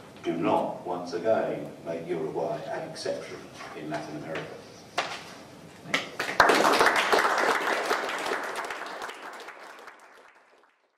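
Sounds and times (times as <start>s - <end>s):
audience applauding: 6.2s - 10.9s.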